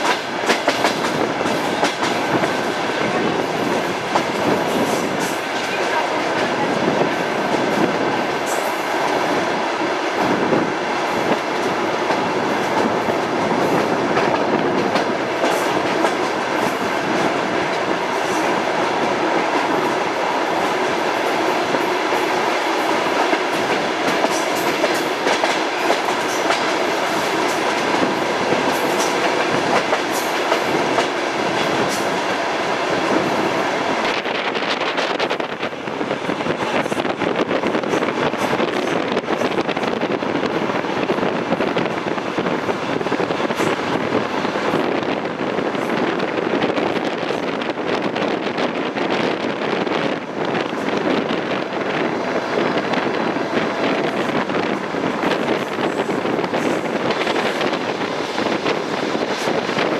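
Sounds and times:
train running noise inside coach: 0:00.0 - 0:59.9.

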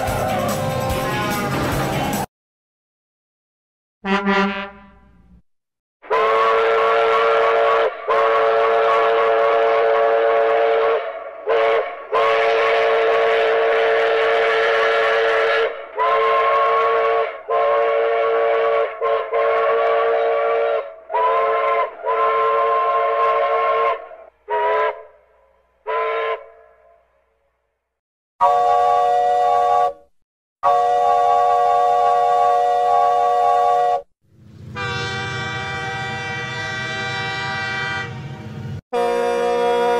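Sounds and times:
steam locomotive chime whistle: 0:00.0 - 0:01.9, 0:06.1 - 0:25.0, 0:28.4 - 0:30.0, 0:30.6 - 0:34.0, 0:34.7 - 0:39.9.

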